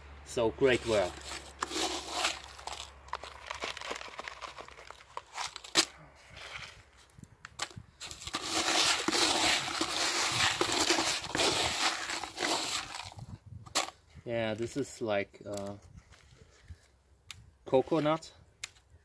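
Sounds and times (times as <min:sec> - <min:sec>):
gritty soil rustling: 0:00.3 - 0:17.0, 0:17.7 - 0:18.9
soil clicks and knocks: 0:00.8 - 0:14.8, 0:15.4 - 0:16.3.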